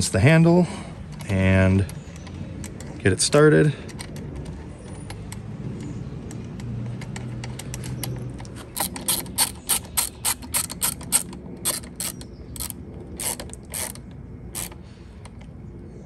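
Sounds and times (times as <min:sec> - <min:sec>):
hand ratchet clicking: 0:06.6 - 0:14.8.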